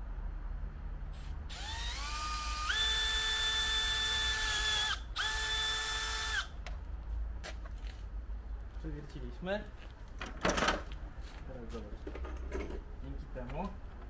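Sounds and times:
power drill whining: 1.2s - 6.6s.

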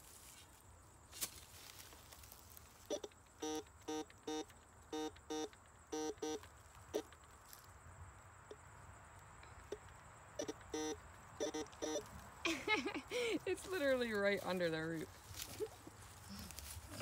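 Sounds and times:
metal detector warbling beeps: 2.9s - 7.1s, 10.4s - 12.1s.

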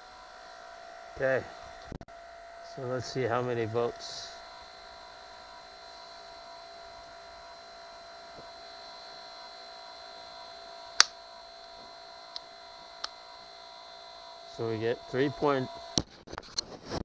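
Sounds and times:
electric motor whine: 0.0s - 16.1s
sharp click: 11.0s - 11.2s.

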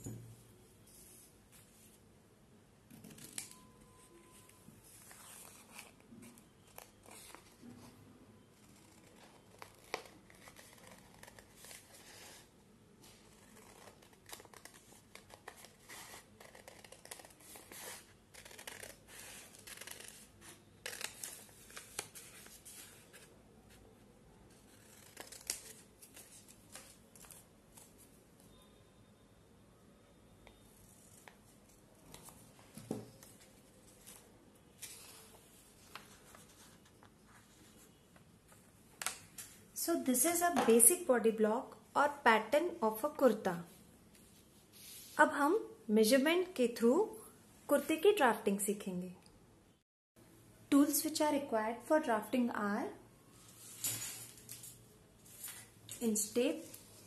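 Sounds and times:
scissors snipping paper: 24.7s - 26.9s.

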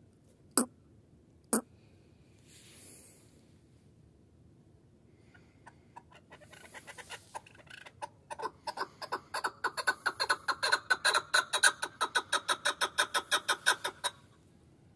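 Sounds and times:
partridge clucking call: 6.0s - 14.2s.

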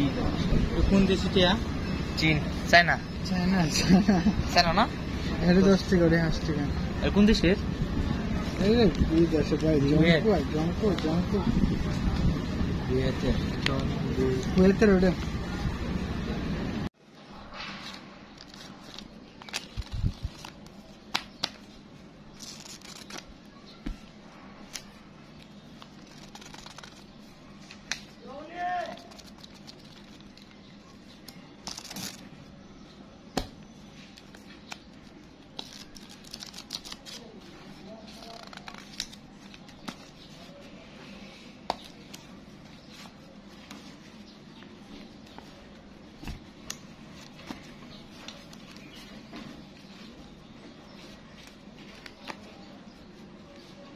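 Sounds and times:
sharp paper snaps: 17.6s - 21.7s, 22.4s - 24.0s, 25.8s - 30.6s, 31.2s - 32.3s, 33.4s - 37.3s, 38.1s - 40.2s
paper banknotes being riffled: 17.8s - 23.7s, 24.6s - 30.6s, 31.2s - 32.5s, 34.1s - 40.8s
paper snaps and taps: 18.4s - 21.7s, 27.6s - 28.1s, 46.2s - 48.8s.

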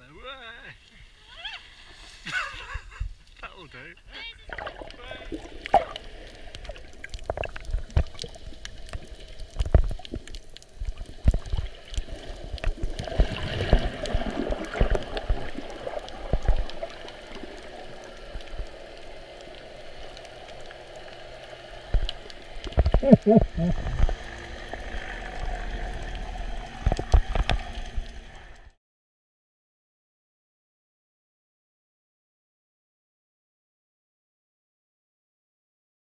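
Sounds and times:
muffled underwater rush and gurgling: 4.3s - 28.8s
low underwater knocks and thumps: 8.9s - 11.7s, 21.9s - 24.2s.

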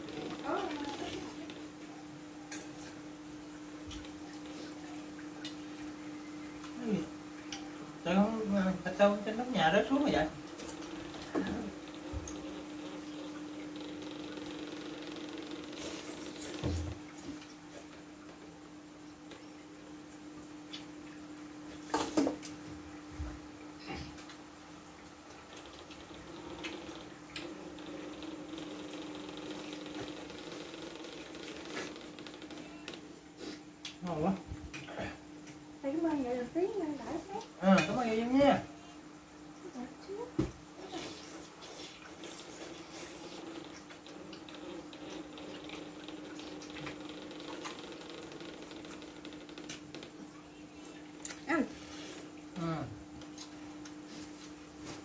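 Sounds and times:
eating sounds: 40.8s - 50.1s.

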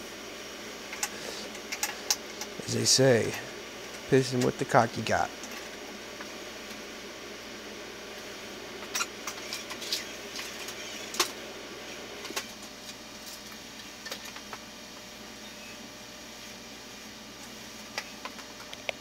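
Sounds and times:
steady background hiss: 0.0s - 9.1s.

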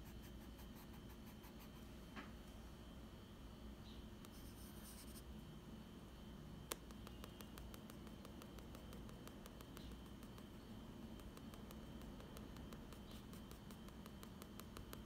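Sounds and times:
pencil scratching on paper: 4.3s - 5.2s, 12.0s - 15.0s
pencil tap: 6.7s - 10.5s, 11.2s - 15.0s.

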